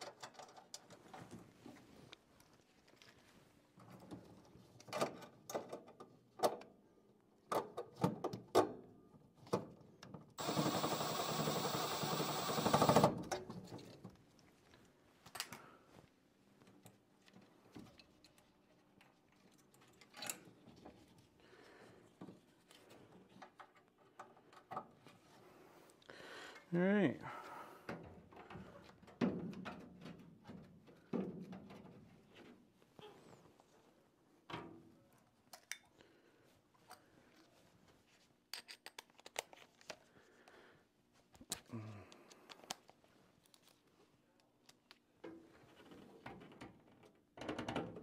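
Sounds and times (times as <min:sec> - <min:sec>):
hands clicking and rattling parts: 0:00.0 - 0:01.4, 0:38.4 - 0:40.1, 0:41.4 - 0:43.8
loud steady whirring: 0:10.4 - 0:13.0.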